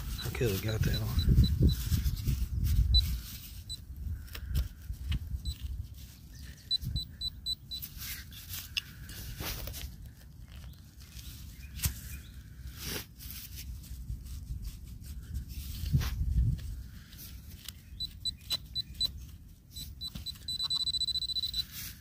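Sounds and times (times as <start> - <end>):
metal detector probe beeping: 0.0 - 1.9, 2.8 - 3.8, 5.4 - 5.7, 6.5 - 8.0, 17.9 - 22.0
probe scraping dirt and grass: 0.0 - 22.0.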